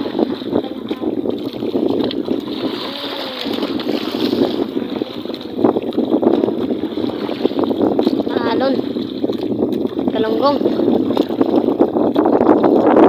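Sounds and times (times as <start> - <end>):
boat engine running: 0.0 - 13.0
wind on microphone: 0.0 - 13.0.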